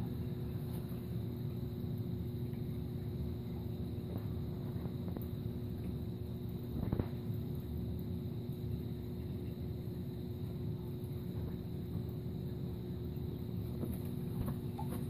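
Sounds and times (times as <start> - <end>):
aquarium pumps humming: 0.0 - 15.0
circulating water: 0.0 - 15.0.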